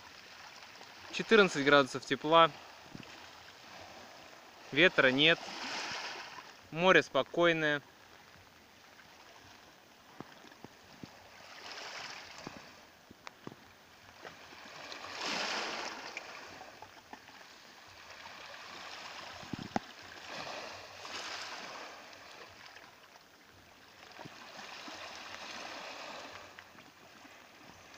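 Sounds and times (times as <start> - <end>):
small waves washing on shore: 0.0 - 27.9.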